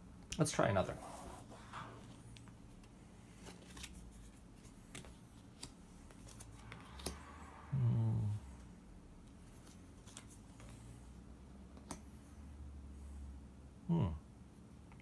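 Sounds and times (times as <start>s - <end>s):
playing cards clicking and sliding: 0.4s - 7.6s, 9.2s - 12.4s
man humming hmm: 7.7s - 8.7s, 13.8s - 14.3s.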